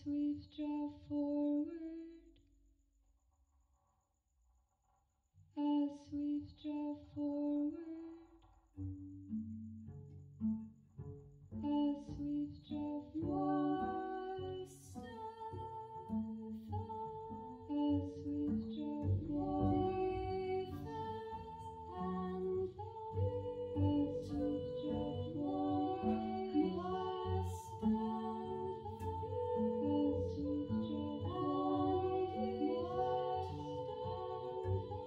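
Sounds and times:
woman singing: 0:00.0 - 0:02.2, 0:05.6 - 0:08.1, 0:11.6 - 0:35.0
plucked double bass: 0:18.0 - 0:35.0.

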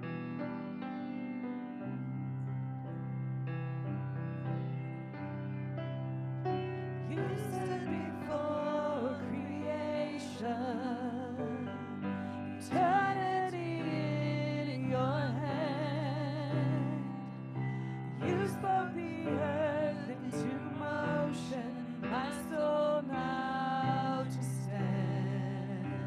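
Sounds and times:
electric keyboard chords: 0:00.0 - 0:26.0
women singing with vibrato: 0:07.0 - 0:26.0.

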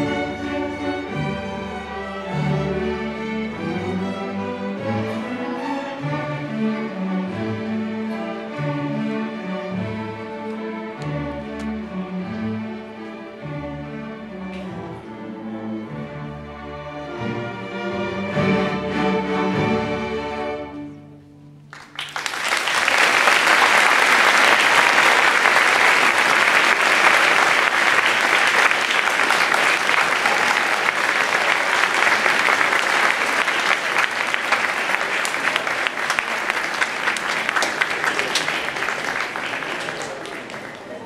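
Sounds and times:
audience applauding: 0:21.7 - 0:41.0.

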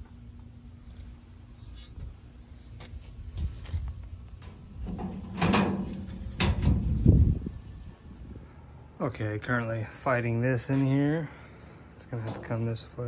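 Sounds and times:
sheet metal clanks and thuds: 0:04.4 - 0:07.1.

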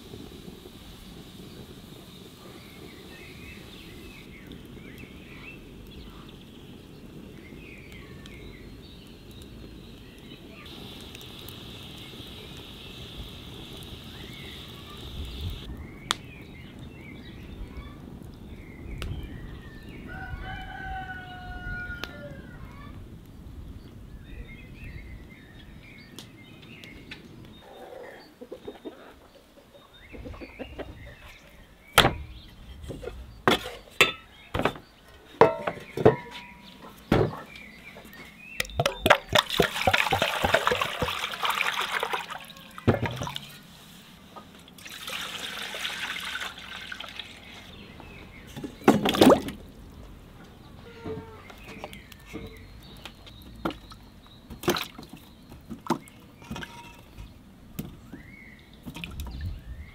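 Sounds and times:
water pouring into a metal pot: 0:38.6 - 0:43.5, 0:44.8 - 0:47.7.

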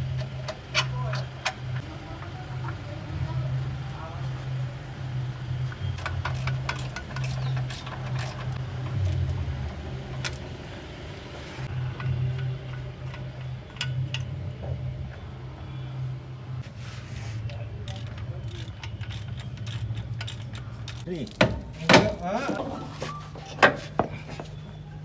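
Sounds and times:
tools clinking against metal: 0:17.8 - 0:22.1.

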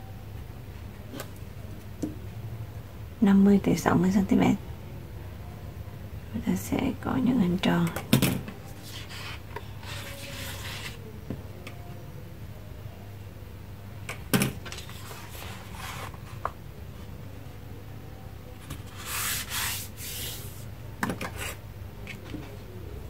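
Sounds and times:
compass scratching on paper: 0:08.7 - 0:11.0, 0:14.8 - 0:16.5, 0:18.7 - 0:20.6.

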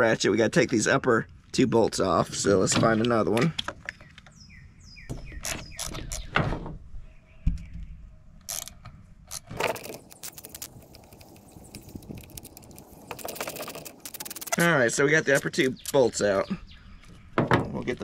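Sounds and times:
hand ratchet clicking: 0:08.5 - 0:14.6.

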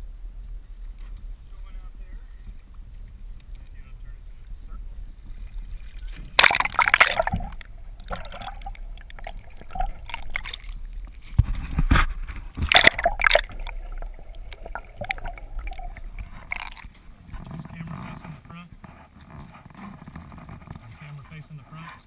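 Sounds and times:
underwater gurgling and bubbling: 0:05.4 - 0:21.1
loud splashes: 0:06.1 - 0:10.9, 0:11.9 - 0:17.0.

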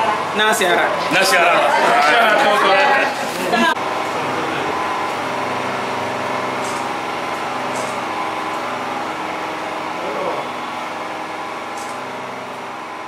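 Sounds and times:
engine humming steadily: 0:03.7 - 0:13.0.

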